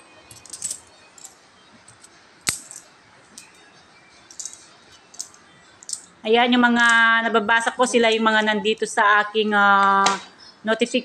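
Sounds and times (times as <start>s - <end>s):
coins clinking: 0.0s - 6.2s, 6.8s - 8.6s.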